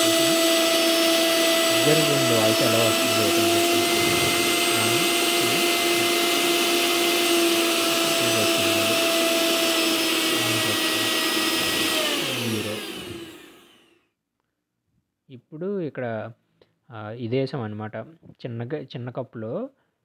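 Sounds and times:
mixer grinder whining: 0.0s - 14.0s.

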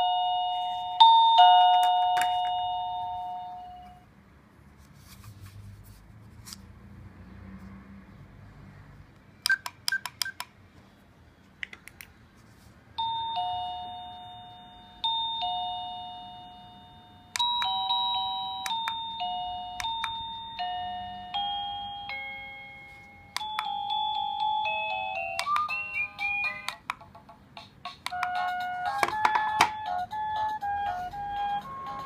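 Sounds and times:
chime melody: 0.0s - 4.0s, 13.0s - 26.7s
two-tone electronic doorbell chime: 0.0s - 4.1s, 13.0s - 26.8s
doorbell button clicks: 1.0s - 4.0s, 17.3s - 19.2s, 19.8s - 20.3s, 23.3s - 23.8s.

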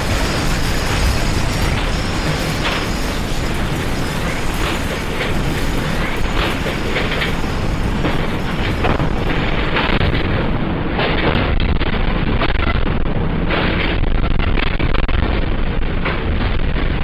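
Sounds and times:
rattles and knocks: 0.0s - 11.9s
earthquake low rumble: 0.0s - 17.0s.

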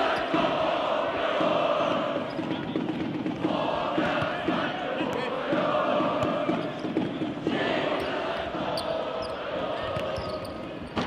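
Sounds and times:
crowd chanting: 0.0s - 2.6s, 3.4s - 10.8s
ball kicked on hard court: 4.0s - 7.2s.

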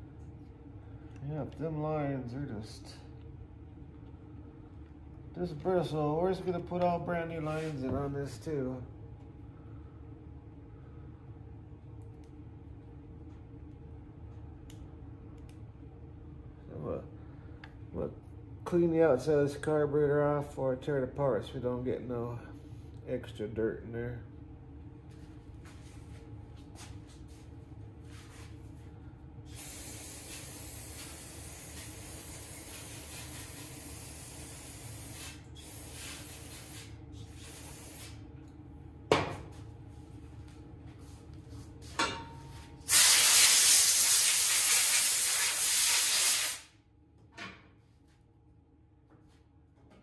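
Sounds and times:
aerosol spray hissing: 29.5s - 38.2s, 42.9s - 46.7s.

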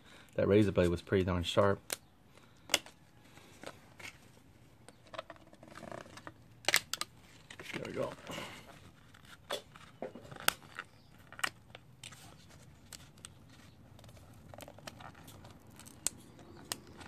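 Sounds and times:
plastic packaging crackling: 5.0s - 17.0s.

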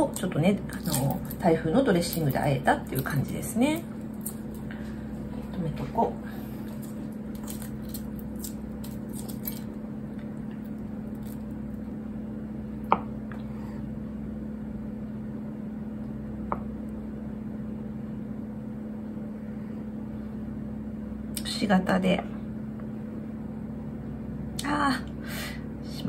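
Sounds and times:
steady low hum: 0.0s - 26.0s
egg shell crackling: 2.1s - 5.5s, 6.5s - 11.9s.

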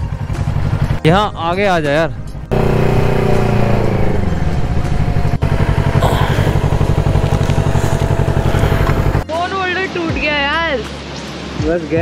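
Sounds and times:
motorcycle engine running: 0.0s - 1.2s, 2.2s - 9.2s.

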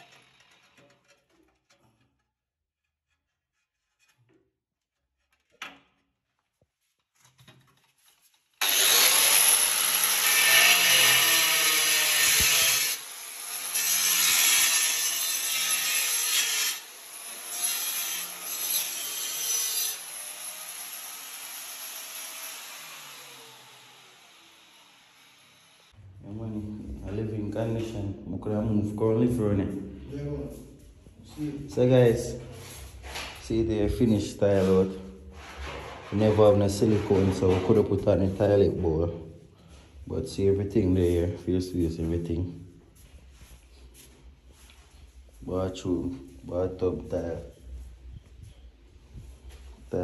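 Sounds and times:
angle grinder cutting tile: 0.0s - 1.3s, 8.6s - 25.9s.

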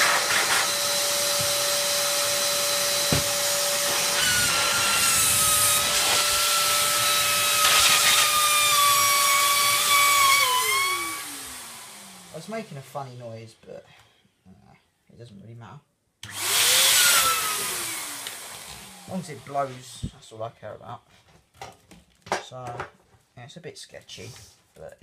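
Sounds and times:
vacuum cleaner motor whining: 0.0s - 12.3s, 16.2s - 19.7s.

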